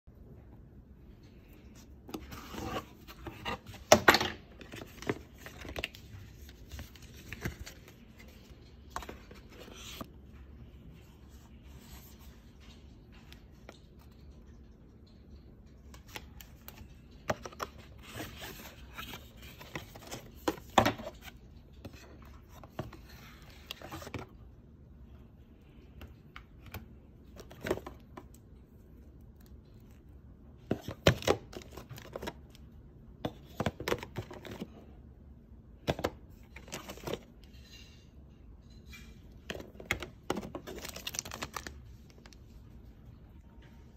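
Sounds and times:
plastic bags crinkling: 40.5s - 42.3s.

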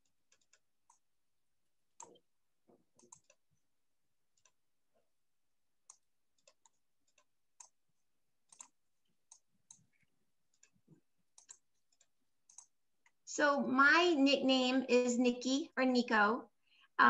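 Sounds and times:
mouse and keyboard clicks: 0.3s - 1.0s, 3.0s - 3.4s, 5.8s - 7.8s, 8.4s - 13.2s.

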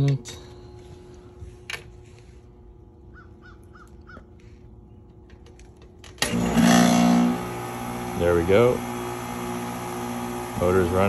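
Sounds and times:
fan motor humming: 0.0s - 11.0s
bird calling: 3.0s - 5.2s.

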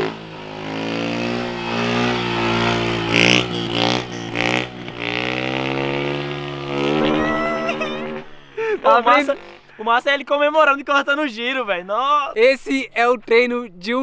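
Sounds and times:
motorcycle engine revving high: 0.0s - 9.7s.

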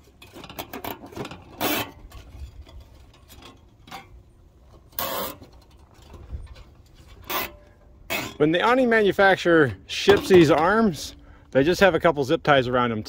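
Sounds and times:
small clicks and rustling: 0.0s - 8.3s.

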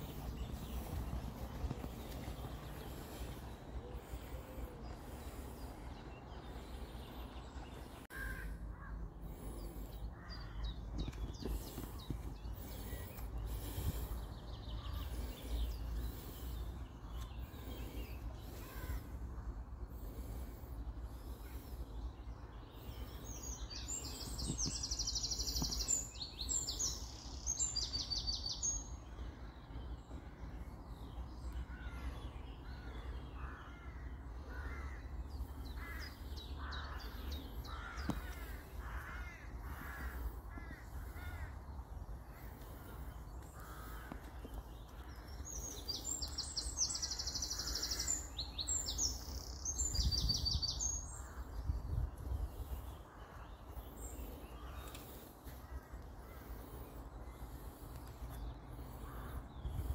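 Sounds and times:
bird cawing: 8.1s - 9.1s, 10.1s - 11.0s, 18.5s - 19.2s, 31.7s - 41.6s, 42.3s - 48.3s.

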